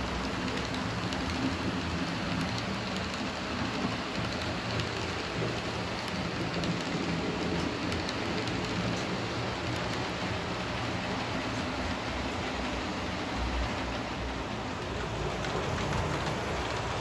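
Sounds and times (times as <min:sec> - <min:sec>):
model train wheels hissing on rails: 0:00.0 - 0:17.0.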